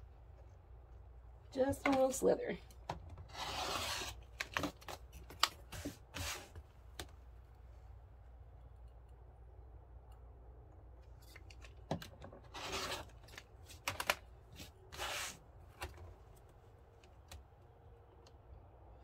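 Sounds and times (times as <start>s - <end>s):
rotary cutter rasping through vinyl: 3.3s - 4.2s.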